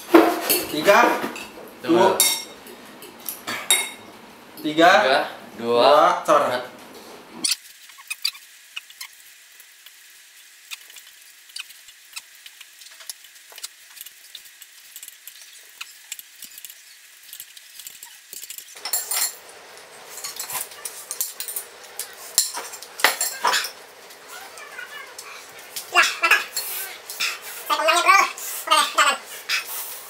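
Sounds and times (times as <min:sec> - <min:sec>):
forks scraping on ceramic plates: 0:17.9 - 0:28.4.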